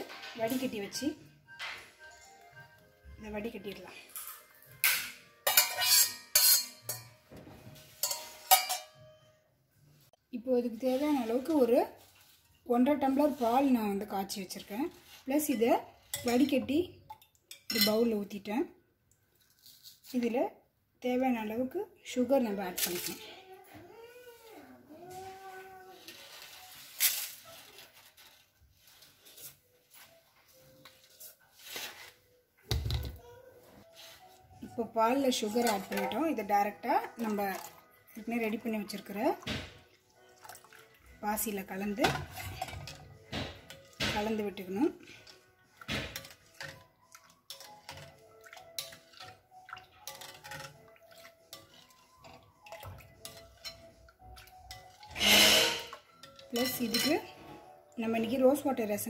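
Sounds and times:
soft background music: 0.0 - 59.0
spoon scrapes and taps: 4.1 - 7.2, 7.8 - 8.9, 45.2 - 57.3.

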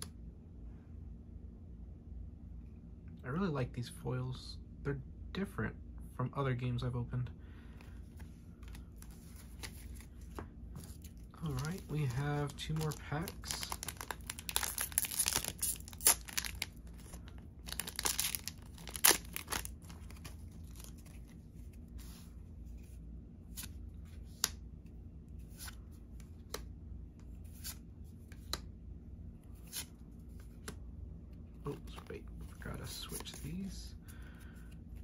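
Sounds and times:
foil wrapper tearing and crinkling: 11.4 - 21.0.

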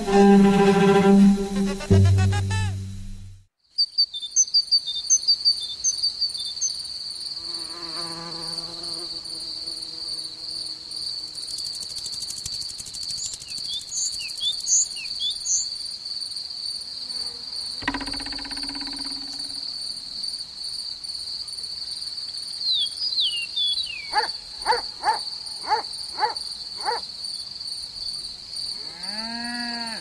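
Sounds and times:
short wavering buzz: 0.0 - 3.4, 17.8 - 19.7
string music: 0.0 - 3.5
high insect trill: 5.2 - 21.4
quick high chirps and whistles: 12.2 - 15.6.

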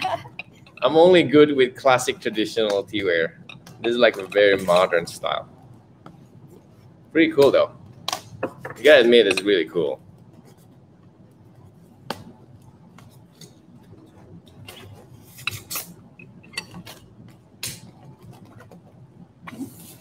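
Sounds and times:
ceramic cups clicking and knocking: 0.3 - 0.9.

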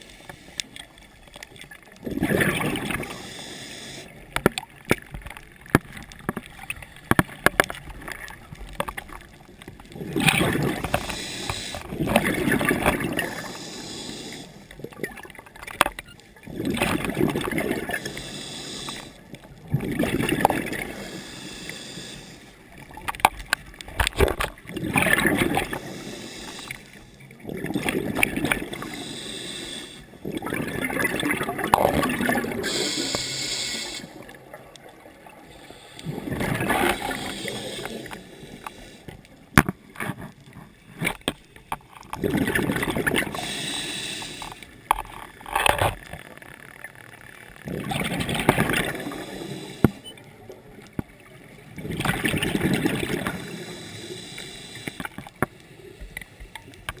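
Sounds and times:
gurgling exhaled bubbles: 1.8 - 4.0, 7.6 - 13.8, 16.4 - 18.2, 19.6 - 21.3, 24.1 - 26.2, 27.4 - 29.2, 30.2 - 33.2, 33.8 - 39.0, 42.0 - 44.2, 47.6 - 49.8, 51.6 - 54.4
regulator breathing hiss: 3.1 - 4.2, 10.8 - 11.9, 13.3 - 14.7, 17.9 - 19.2, 20.9 - 22.6, 25.7 - 27.2, 28.7 - 30.2, 32.6 - 34.2, 35.4 - 39.2, 43.3 - 44.8, 49.0 - 50.0, 53.2 - 56.5.

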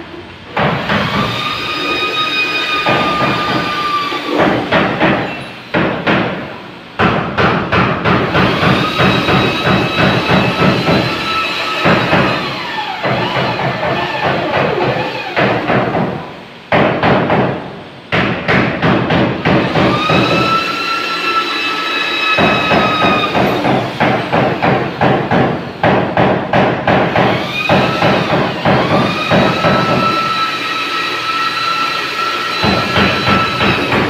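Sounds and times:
electric drill motor whine: 0.8 - 4.7, 8.4 - 15.4, 19.6 - 24.3, 27.2 - 34.0.

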